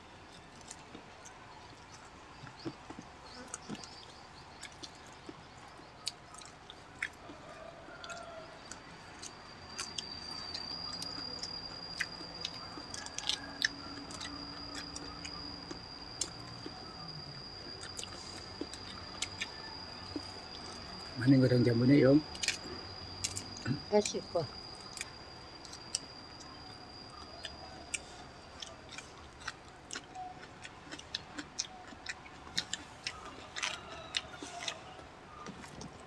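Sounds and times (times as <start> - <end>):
people chewing food: 0.0 - 36.0
thin high tone: 8.2 - 29.3.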